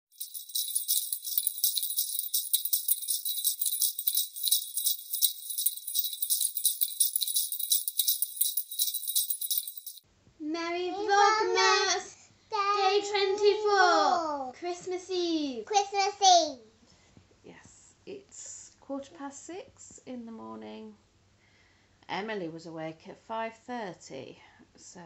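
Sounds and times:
sleigh bells jingling: 0:00.0 - 0:10.0.

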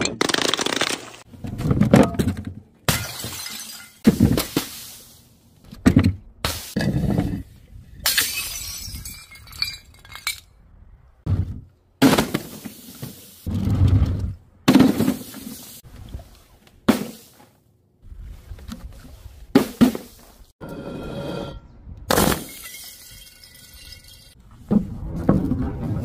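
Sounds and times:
glass smashing on tiles: 0:02.9 - 0:04.0, 0:08.1 - 0:10.5, 0:22.2 - 0:24.4.

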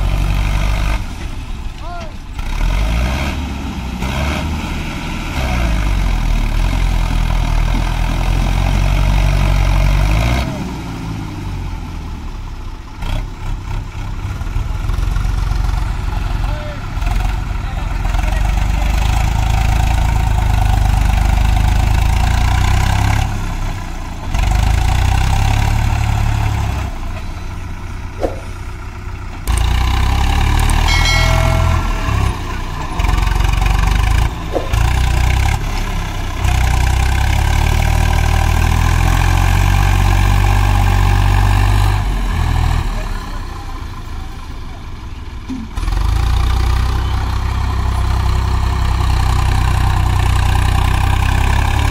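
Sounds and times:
diesel tractor engine running: 0:00.0 - 0:51.9
brief high tone: 0:30.7 - 0:32.8.

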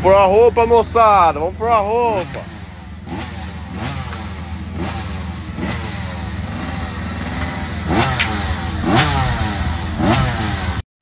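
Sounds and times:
dirt bike engines revving: 0:00.0 - 0:10.8
low engine drone: 0:00.0 - 0:10.8.

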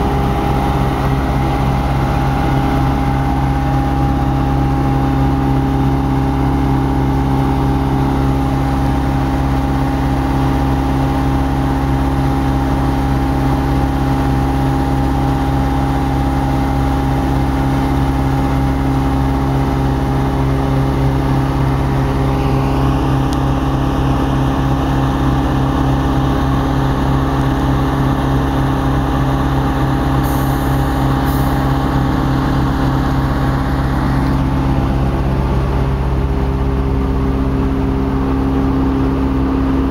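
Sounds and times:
high-pitched whine: 0:00.0 - 0:12.4
diesel locomotive engine running: 0:00.0 - 0:39.9.

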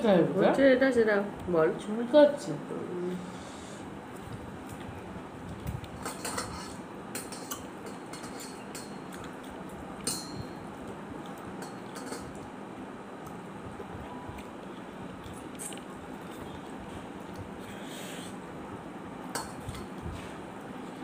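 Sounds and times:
fingers mixing rice on metal plate: 0:05.5 - 0:10.5.

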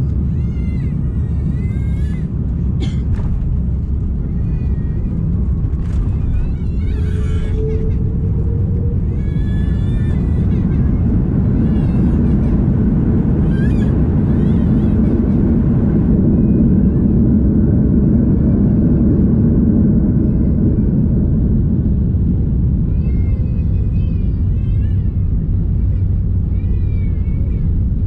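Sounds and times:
airplane rolling on runway rumble: 0:00.0 - 0:28.0
high wavering squeals: 0:05.8 - 0:11.2.

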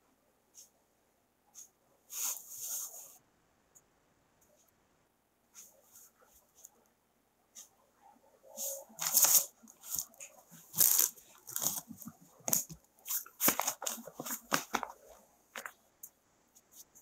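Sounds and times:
paper rustling and crinkling: 0:08.9 - 0:15.8.

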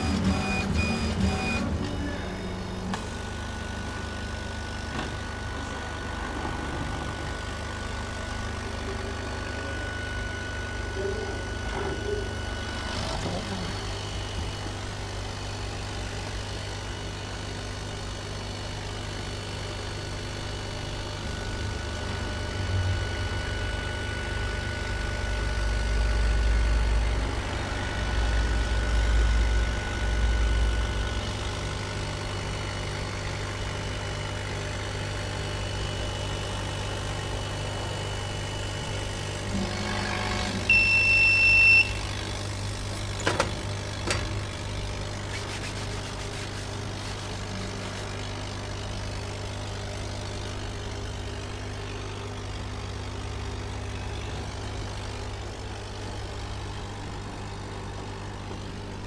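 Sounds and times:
electronic beep: 0:00.0 - 0:02.2, 0:40.7 - 0:42.0
laser engraver humming: 0:00.0 - 0:59.0.

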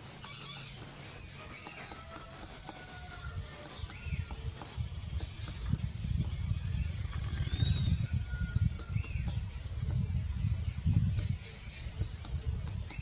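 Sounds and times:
bird chirps: 0:00.0 - 0:09.4
high-pitched insect drone: 0:00.0 - 0:13.0.

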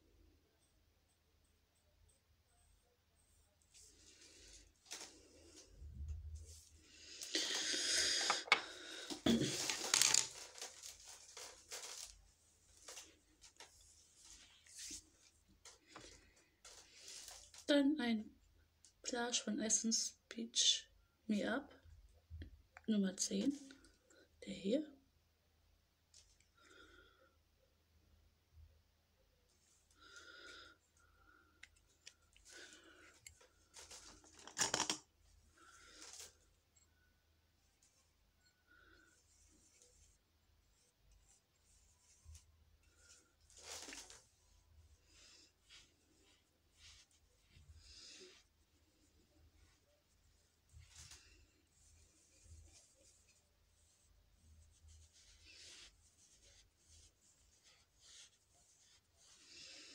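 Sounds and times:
rustling and crinkling handling: 0:03.7 - 0:07.6, 0:09.0 - 0:17.7, 0:31.7 - 0:36.7, 0:37.6 - 0:59.9
plastic compact rustling: 0:09.5 - 0:12.2, 0:33.2 - 0:35.0.

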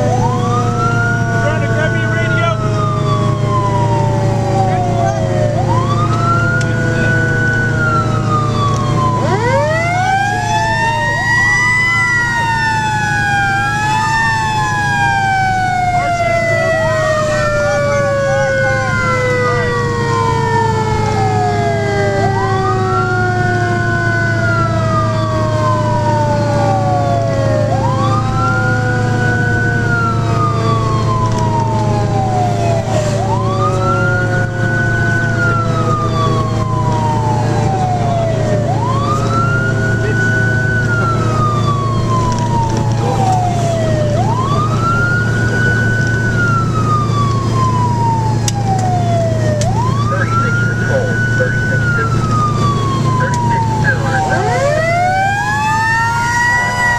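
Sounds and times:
fire engine siren wailing: 0:00.0 - 0:56.9
lower siren tone gliding down: 0:00.0 - 0:56.9
truck engine drone: 0:00.0 - 0:56.9.

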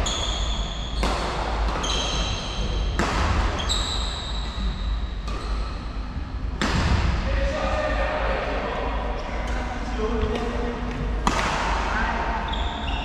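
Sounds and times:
racket hitting shuttlecock: 0:00.1 - 0:03.8, 0:11.2 - 0:11.8
shoes squeaking on wooden floor: 0:01.8 - 0:02.7.

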